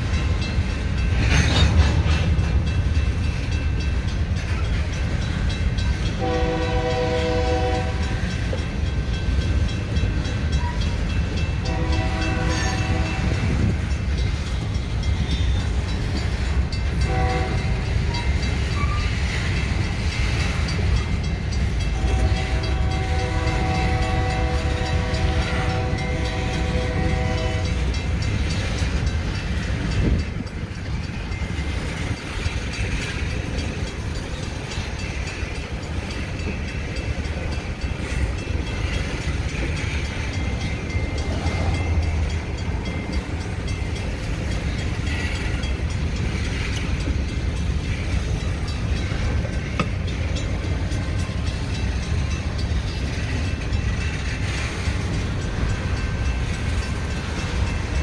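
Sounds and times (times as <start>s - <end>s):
freight train rumbling on rails: 0.0s - 58.0s.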